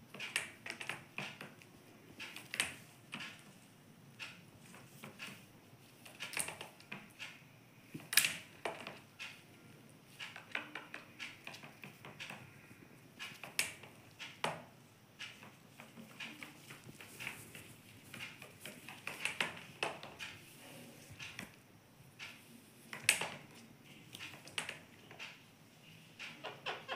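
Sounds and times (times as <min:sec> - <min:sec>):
parrot beak tapping: 0:10.3 - 0:12.6.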